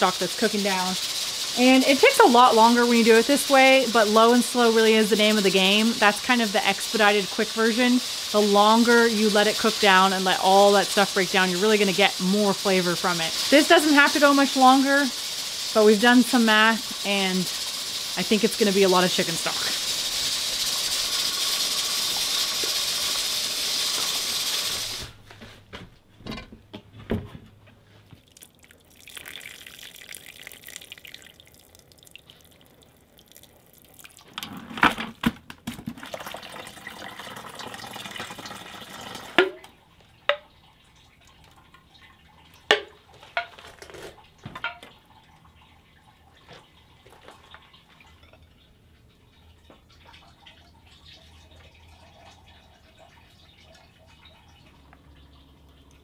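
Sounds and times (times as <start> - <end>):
steady loud hiss of steaming pot: 0.0 - 25.2
liquid sloshing and dripping: 28.0 - 34.6, 35.5 - 56.0.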